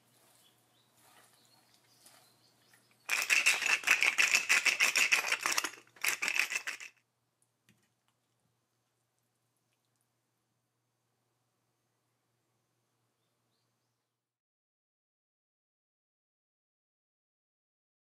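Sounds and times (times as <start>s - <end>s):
rustle of hand rubbing vegetables: 0.0s - 4.0s.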